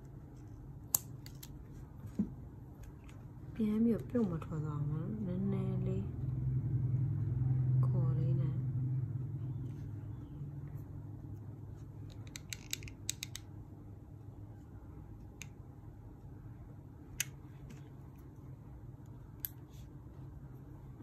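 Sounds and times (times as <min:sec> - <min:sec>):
steady low hum: 0:00.0 - 0:21.0
small sharp clicks: 0:12.1 - 0:13.5.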